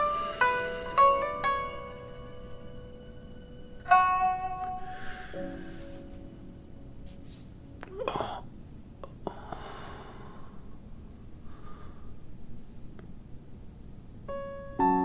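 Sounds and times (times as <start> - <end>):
man breathing and sighing in sleep: 4.8 - 6.2, 7.9 - 12.3.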